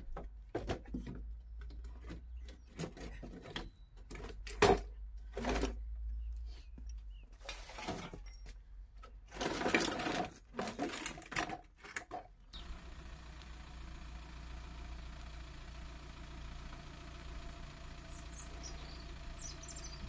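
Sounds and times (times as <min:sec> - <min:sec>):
faint bird chirps: 0:18.1 - 0:20.0.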